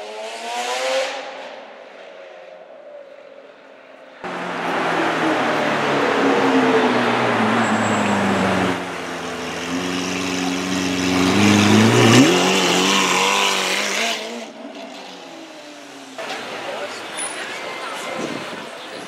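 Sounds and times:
car engine revving: 4.2s - 17.1s.

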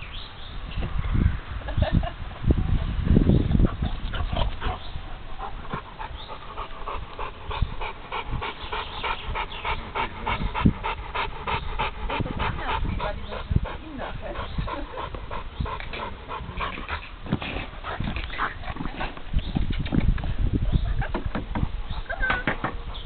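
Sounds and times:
dog panting: 3.6s - 19.3s.

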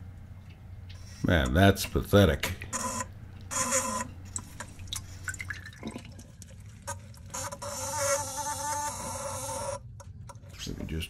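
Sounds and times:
electric bilge pump motor buzzing: 2.7s - 4.6s, 7.2s - 9.9s.

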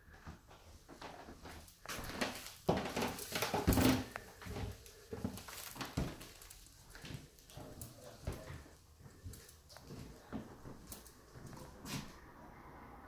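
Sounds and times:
footsteps on wooden floor: 0.0s - 12.2s.

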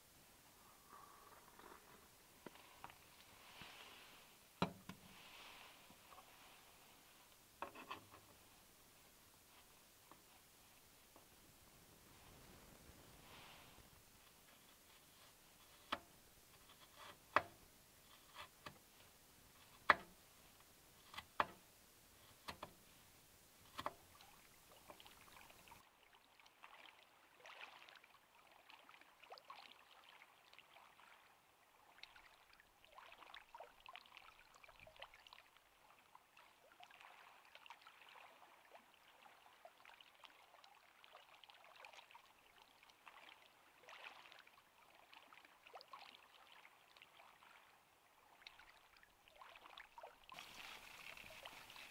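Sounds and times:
water pattering: 49.4s - 51.9s.

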